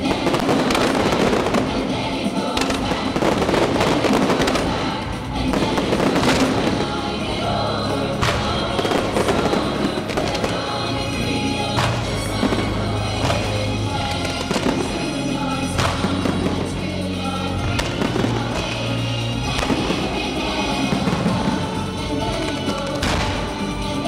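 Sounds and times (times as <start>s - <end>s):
fireworks banging and crackling: 0.0s - 24.0s
live pop music with choir: 0.0s - 24.0s.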